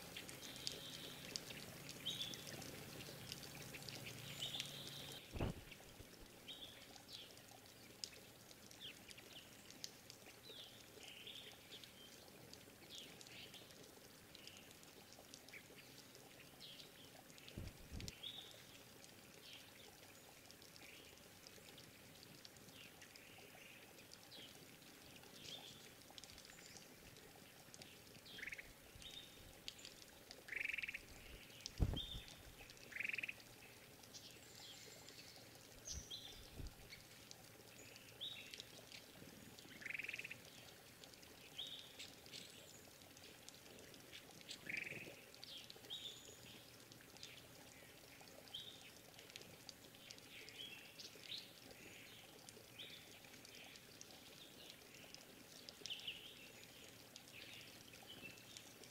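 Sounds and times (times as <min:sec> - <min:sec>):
small birds chirping: 0:00.1 - 0:21.3, 0:22.7 - 0:40.8, 0:41.4 - 0:49.2
dull low thumps: 0:05.3 - 0:06.0, 0:17.5 - 0:18.1, 0:31.7 - 0:32.4.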